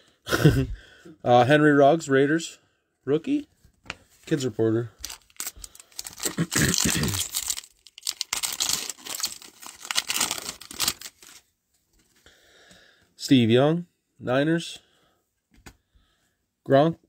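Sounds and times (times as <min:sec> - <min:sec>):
foil wrapper tearing and crinkling: 0:05.0 - 0:11.4.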